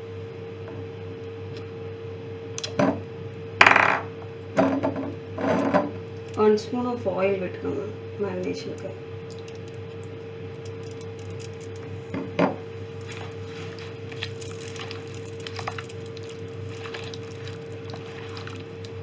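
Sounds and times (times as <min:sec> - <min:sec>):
steady hum: 0:00.0 - 0:19.0
hand squishing chicken in marinade: 0:12.8 - 0:19.0.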